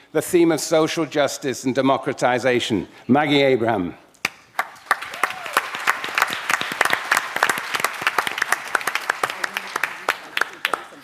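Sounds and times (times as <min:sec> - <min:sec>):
audience applauding: 0:04.6 - 0:11.0.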